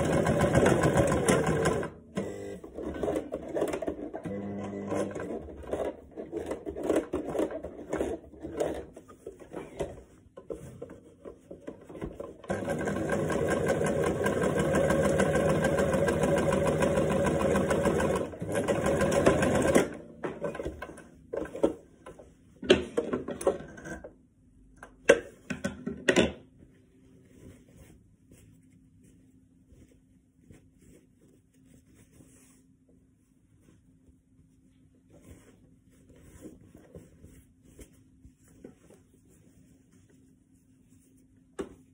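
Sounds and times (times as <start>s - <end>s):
electric sewing machine stitching: 0.0s - 5.8s, 12.5s - 20.0s
fabric rustling: 26.6s - 41.9s.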